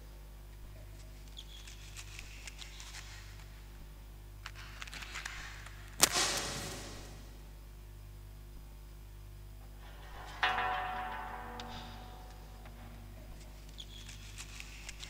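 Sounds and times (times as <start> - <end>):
steady low hum: 0.0 - 15.0
small clicks and scratches: 0.8 - 3.8, 4.4 - 6.0, 13.4 - 15.0
sharp crack: 4.4 - 7.4
burst of hiss: 6.0 - 7.3.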